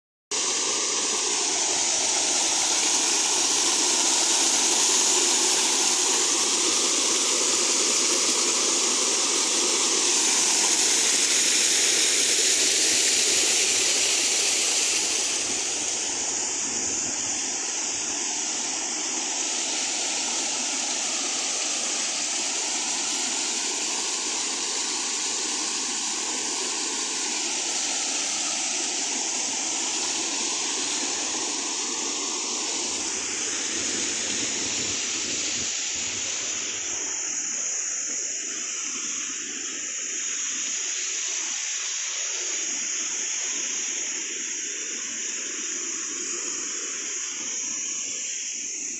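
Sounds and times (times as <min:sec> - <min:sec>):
small waterfall splashing into pond: 0:00.3 - 0:37.4.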